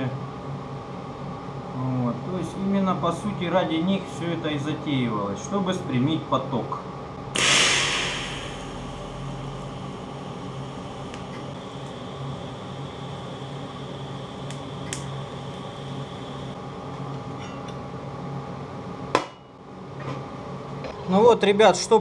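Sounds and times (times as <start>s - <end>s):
welding arc crackling hiss: 7.3s - 16.6s.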